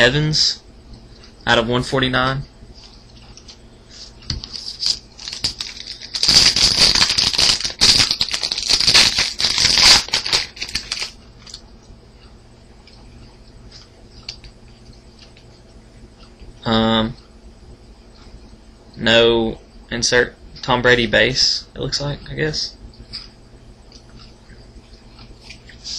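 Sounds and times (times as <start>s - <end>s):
card pack crinkling and tearing: 4.4s - 11.6s.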